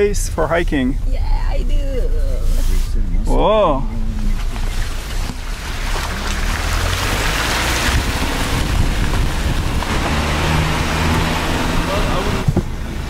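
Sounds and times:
vehicle engine hum: 0.0 - 13.0
wind noise: 2.6 - 13.0.

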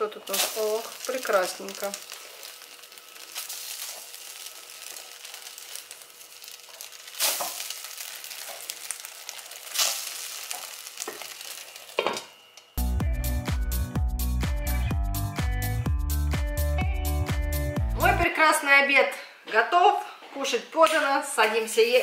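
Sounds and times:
patties sizzling in a frying pan: 0.0 - 12.2.

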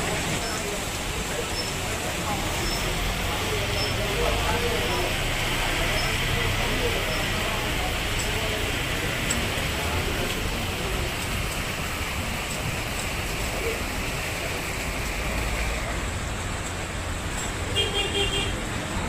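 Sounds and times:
heavy rain on street: 0.0 - 19.0
vehicles driving on wet road: 0.0 - 19.0
vehicle horn beeps: 17.8 - 18.6.

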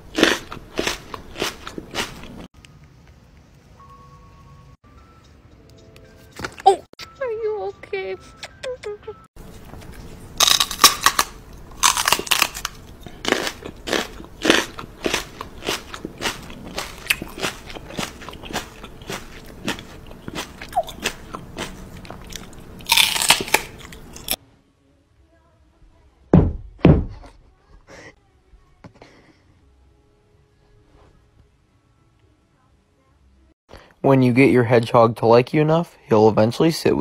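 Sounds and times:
crunching and munching: 0.0 - 2.5, 9.4 - 24.4
music: 3.8 - 10.1, 27.6 - 33.6
dull thumps: 26.3 - 27.3.

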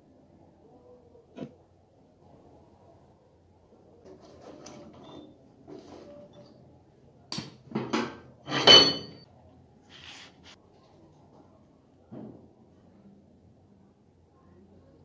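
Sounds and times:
steel parts clanking on metal: 8.0 - 9.2.

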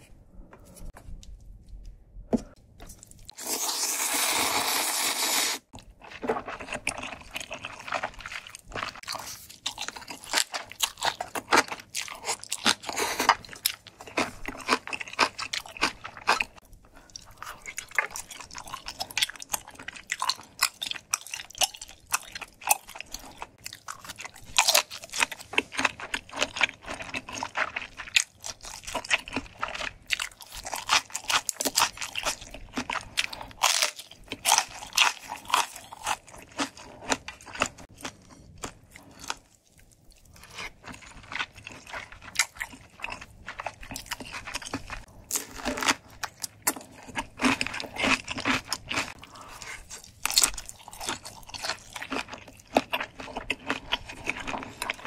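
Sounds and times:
wet chewing clicks and crunches: 5.7 - 55.0.

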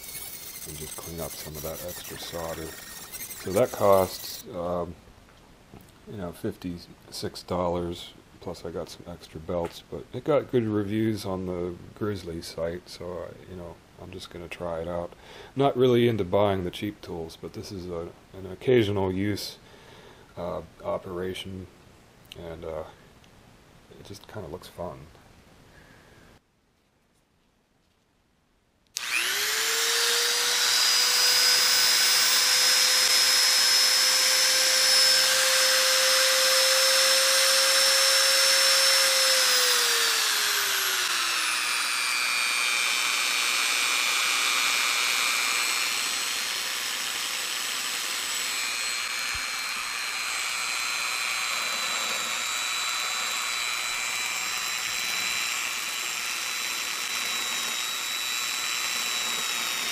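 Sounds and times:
belt sander motor whine: 0.0 - 4.5, 29.0 - 59.9.

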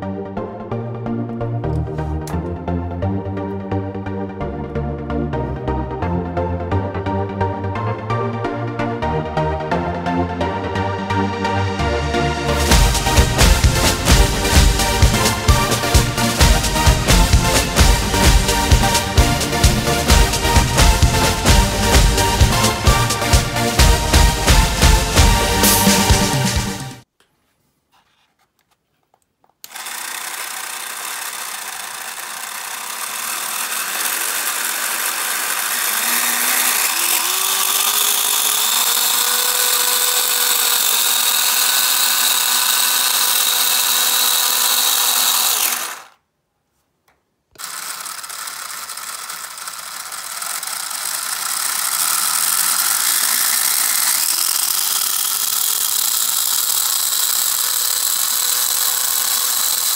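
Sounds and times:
small electric motors whirring: 29.6 - 46.2, 47.6 - 59.9.

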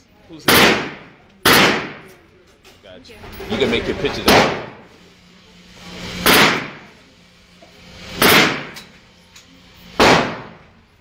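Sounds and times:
gunshot echo: 0.5 - 2.1, 4.3 - 4.8, 6.2 - 6.9, 8.2 - 8.8, 10.0 - 10.6
gunshots indoors: 0.5 - 2.2, 4.2 - 4.8, 6.2 - 7.0, 8.1 - 8.9, 10.0 - 10.7.

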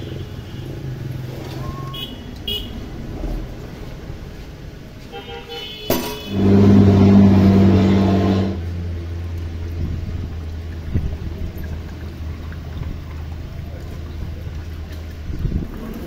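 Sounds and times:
vehicle engine humming: 0.0 - 16.0
horn toot: 5.1 - 8.7.

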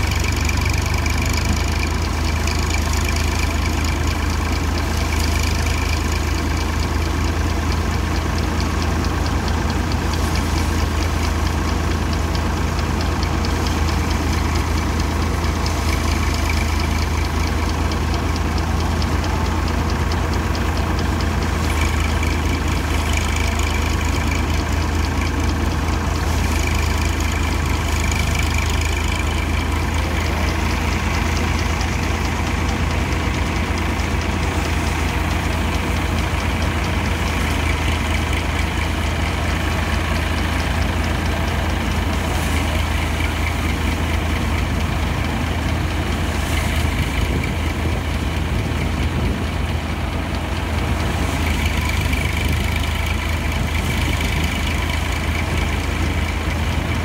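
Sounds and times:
threshing machine humming: 0.0 - 57.0.

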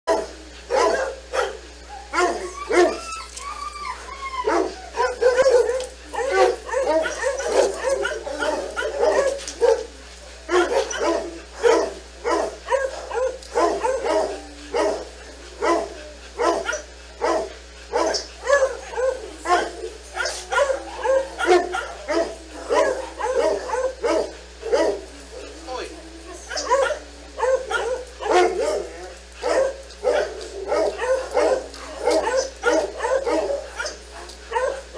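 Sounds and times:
dogs barking: 0.1 - 34.9
howl-like yips: 1.9 - 9.8.

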